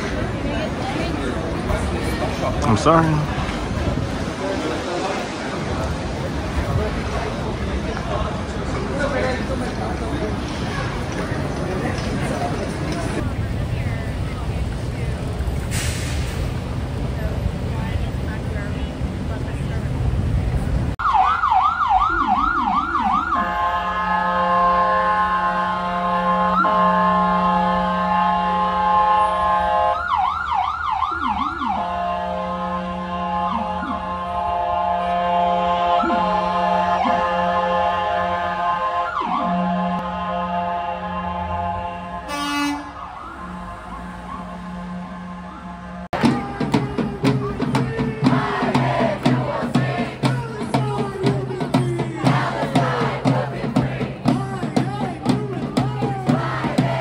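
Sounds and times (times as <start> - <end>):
ambulance siren: 21.0 - 46.3
crowd chanting in unison: 32.5 - 39.1, 46.1 - 51.0, 51.9 - 54.4, 55.8 - 57.0
steady drum beat: 46.1 - 57.0.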